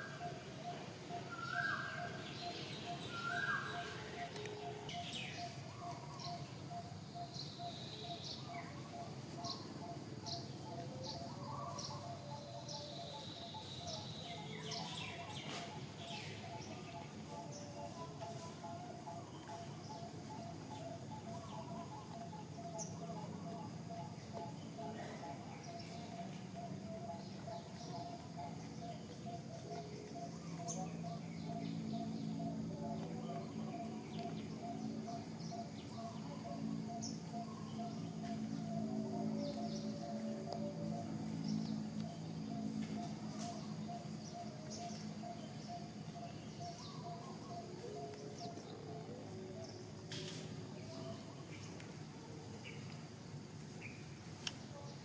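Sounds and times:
small birds chirping: 0:00.0 - 0:55.0
steady low hum: 0:00.0 - 0:55.0.

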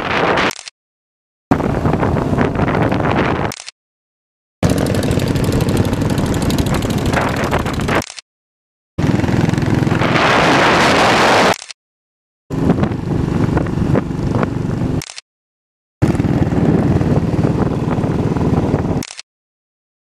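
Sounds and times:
wind rush on microphone: 0:00.0 - 0:00.6, 0:01.5 - 0:03.6, 0:04.6 - 0:08.0, 0:09.0 - 0:11.6, 0:12.5 - 0:15.0, 0:16.0 - 0:19.0
motorcycle engine running: 0:04.6 - 0:08.0, 0:09.0 - 0:10.4, 0:12.5 - 0:15.0, 0:16.0 - 0:19.0.

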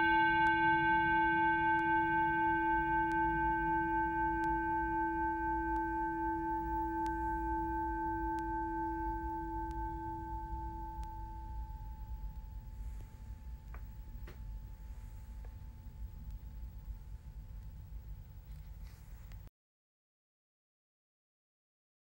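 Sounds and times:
bell cymbal ringing: 0:00.0 - 0:15.4.

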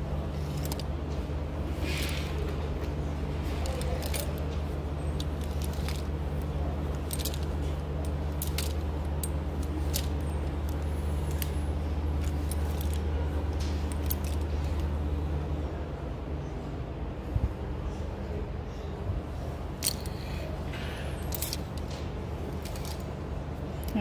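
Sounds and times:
steady low hum: 0:00.0 - 0:24.0
plastic hangers clicking on rack: 0:00.3 - 0:15.0, 0:19.8 - 0:24.0.

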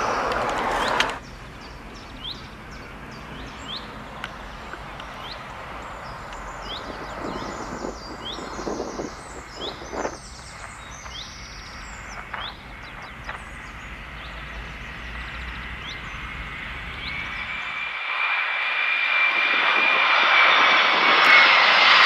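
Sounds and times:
steady background hum: 0:00.0 - 0:17.8
jet airliner whine: 0:00.0 - 0:22.0
small birds chirping: 0:00.6 - 0:18.0.

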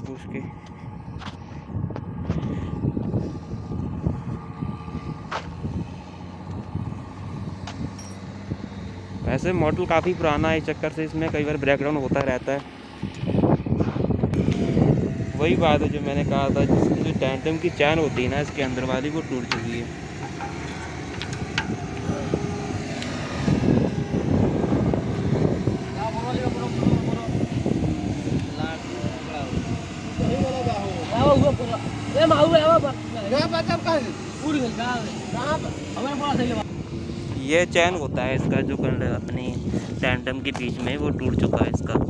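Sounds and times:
diesel engine idling: 0:00.0 - 0:42.0
steady rumbling noise: 0:00.0 - 0:42.0
wind buffeting microphone: 0:00.0 - 0:42.0
chain links clinking: 0:08.0 - 0:08.3.

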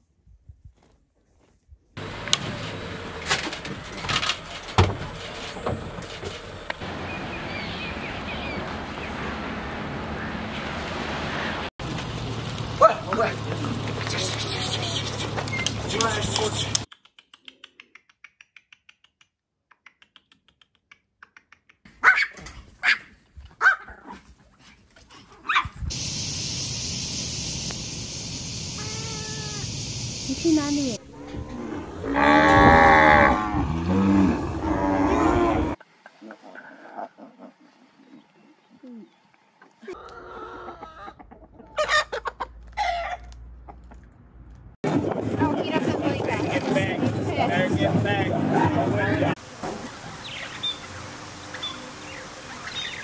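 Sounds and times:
small dogs barking: 0:22.0 - 0:24.2, 0:25.4 - 0:25.8
steady hiss: 0:25.9 - 0:31.0
chickens calling: 0:39.9 - 0:44.1, 0:49.8 - 0:53.0.

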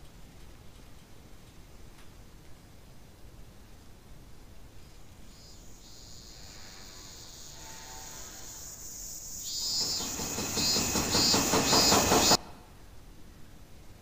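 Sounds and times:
faint high ringing tones: 0:04.8 - 0:12.4
rushing noise with flutter: 0:05.0 - 0:12.4.

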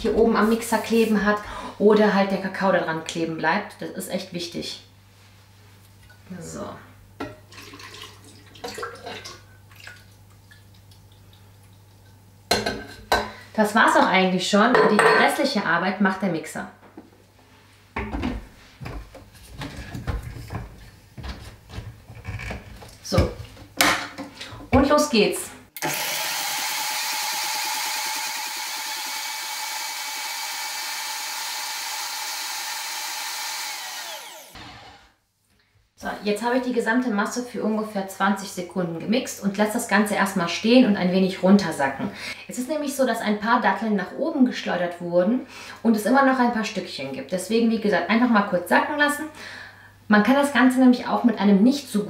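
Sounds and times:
liquid pouring and splashing: 0:07.5 - 0:11.9
blender motor spinning down: 0:25.8 - 0:35.2
blender running: 0:25.8 - 0:35.2.

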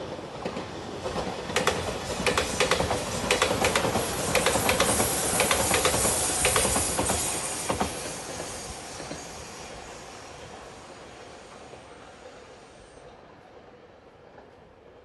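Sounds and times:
train rushing past: 0:00.0 - 0:15.0
wheels clacking over rail joints: 0:00.4 - 0:08.0.

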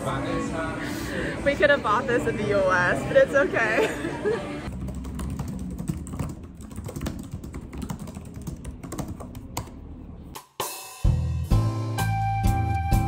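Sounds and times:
typing on computer keyboard: 0:04.7 - 0:09.8.

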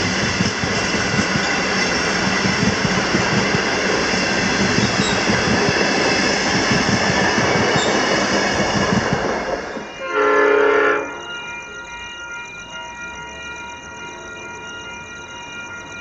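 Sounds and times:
train wheels rumbling on track: 0:00.0 - 0:16.0
loud chord-like tone: 0:09.9 - 0:16.0.

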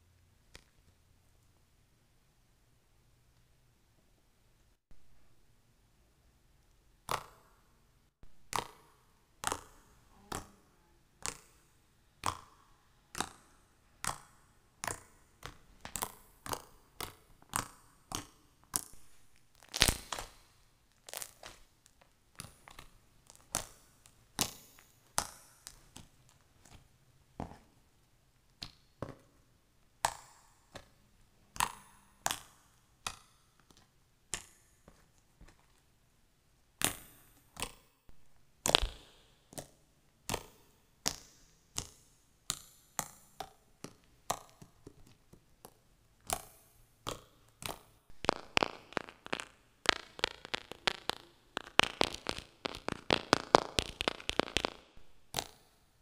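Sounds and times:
slime squeezed making clicking pops: 0:46.3 - 0:55.6.

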